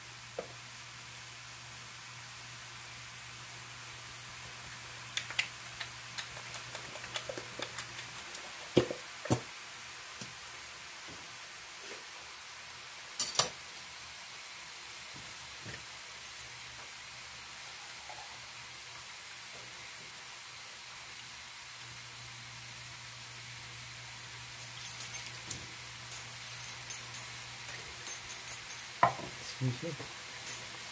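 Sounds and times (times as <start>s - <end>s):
utensil knocking on metal bowl: 29.0s - 29.3s.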